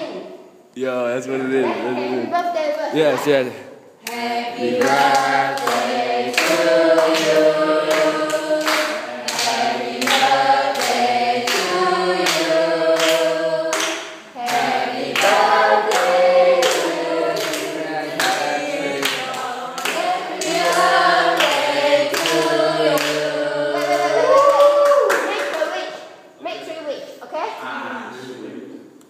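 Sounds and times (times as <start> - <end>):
group singing: 3.0 - 24.9
people clapping: 4.0 - 25.8.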